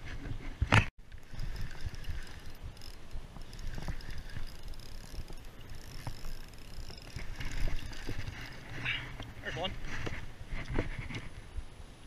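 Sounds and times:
wind rumble on microphone: 0.0 - 12.0
fishing reel whirring and clicking: 1.1 - 9.4.

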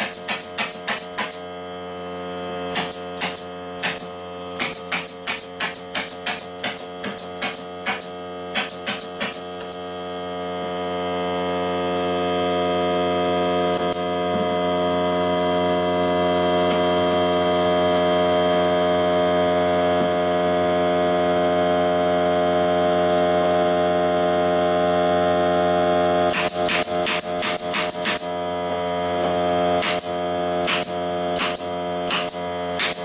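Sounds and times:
air stapler shots: 0.0 - 1.4, 2.7 - 9.9, 13.7 - 14.1, 26.3 - 28.3, 29.8 - 33.0
air compressor motor humming: 0.0 - 33.0.

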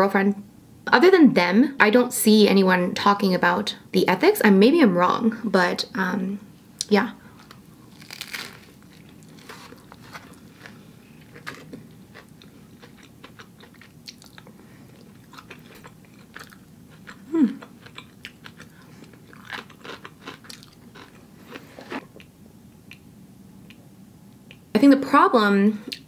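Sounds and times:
person chewing: 7.3 - 23.8.

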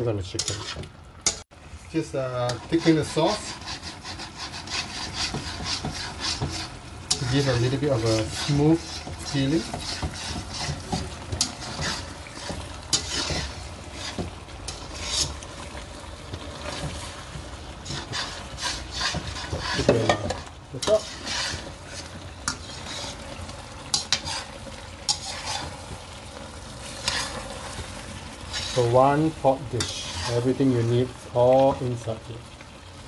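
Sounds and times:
sauce sizzling: 0.0 - 33.0
spatula scraping in a wok: 0.3 - 31.3.

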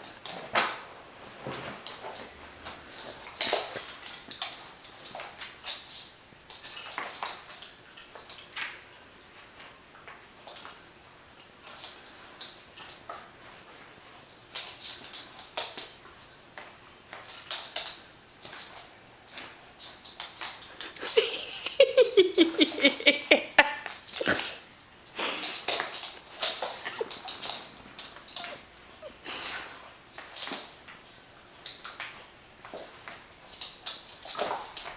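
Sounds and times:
small dog whining: 28.3 - 29.8.

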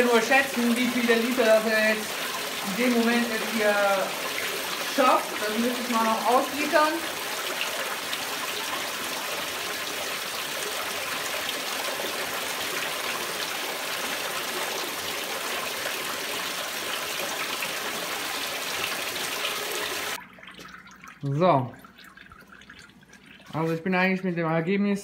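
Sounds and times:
rushing water flowing from pipe: 0.0 - 20.7.

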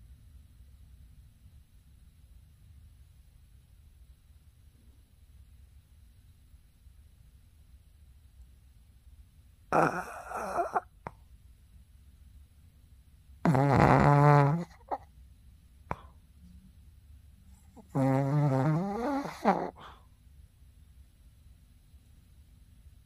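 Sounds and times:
dog snoring loudly: 9.7 - 10.9, 13.4 - 15.0, 17.8 - 20.0.

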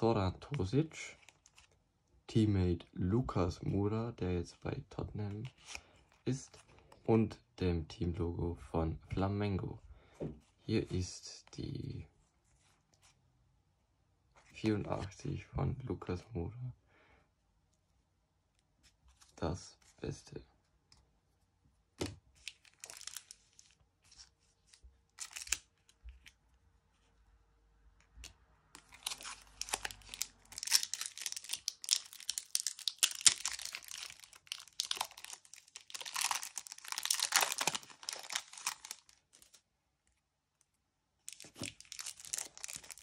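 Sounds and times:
foil wrapper tearing and crinkling: 22.4 - 23.5, 28.8 - 39.6, 41.3 - 43.0.

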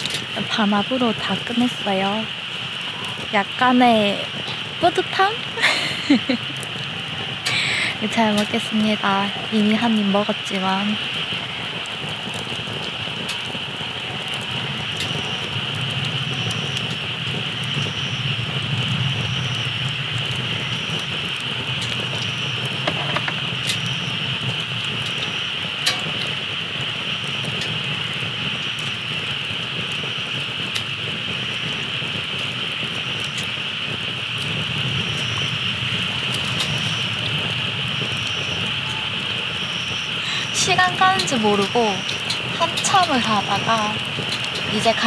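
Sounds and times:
campfire crackles: 0.0 - 45.0
insects buzzing: 0.0 - 45.0
road traffic rumble: 0.0 - 45.0.

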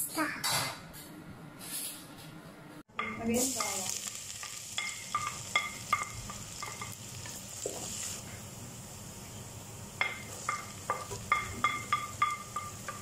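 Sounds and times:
garlic sizzling in hot oil: 3.0 - 13.0
wooden spoon knocking on pot: 10.0 - 13.0.

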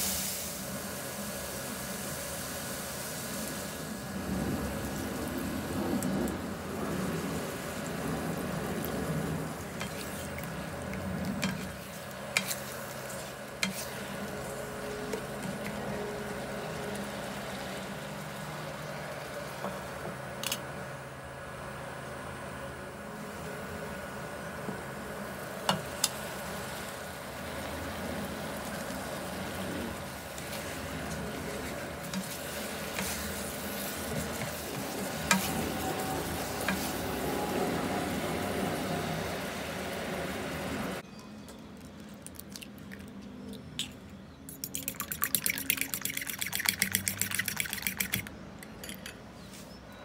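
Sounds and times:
chicken sizzling in a frying pan: 0.0 - 20.0, 24.9 - 41.0
fork beating eggs in a bowl: 11.3 - 14.1, 31.5 - 35.6, 44.5 - 49.1
spatula scraping a pan: 11.4 - 14.1, 30.4 - 37.0.

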